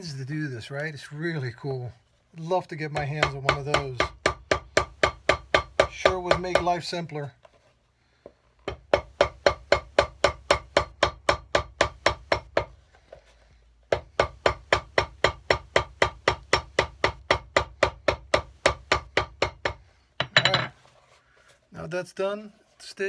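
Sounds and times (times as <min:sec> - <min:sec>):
hammer striking leather shoe sole: 0:03.0 - 0:06.7, 0:08.6 - 0:12.7, 0:13.9 - 0:19.8.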